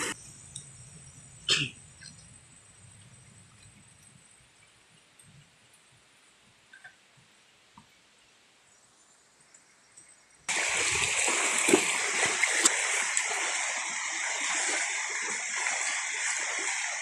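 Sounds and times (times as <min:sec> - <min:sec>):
splashes of people wading: 0:10.5 - 0:17.0
stream rushing over stones: 0:10.5 - 0:17.0.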